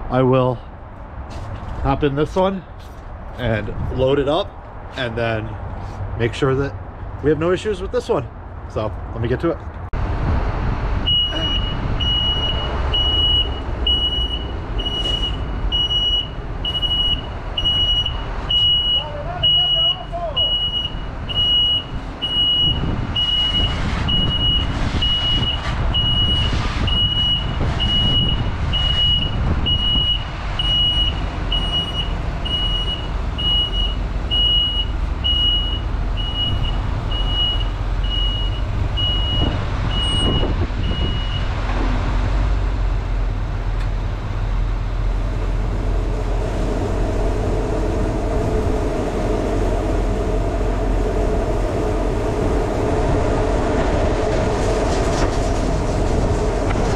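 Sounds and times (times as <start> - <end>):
diesel truck engine running: 9.9 - 56.9
reversing alarm beeping: 11.1 - 41.5
steady hum: 44.4 - 56.9.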